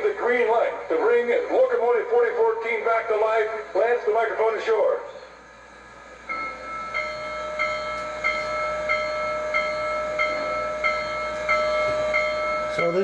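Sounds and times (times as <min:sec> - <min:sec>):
locomotive bell ringing: 0:06.2 - 0:13.0.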